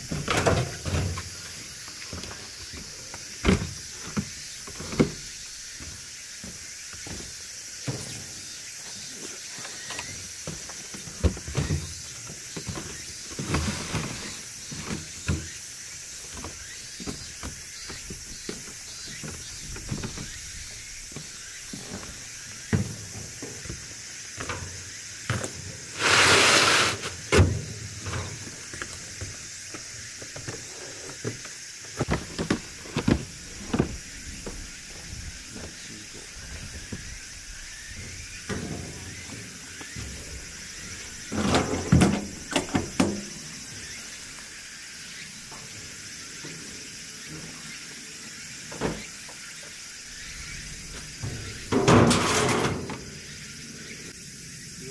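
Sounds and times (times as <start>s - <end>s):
plastic crates knocking and thudding: 0.0s - 8.4s, 9.9s - 15.6s, 21.1s - 26.1s, 31.3s - 34.1s, 41.3s - 43.4s
insects droning: 0.0s - 54.9s
crate scraping: 11.1s - 15.6s, 25.3s - 28.4s, 38.0s - 43.3s, 50.4s - 53.4s.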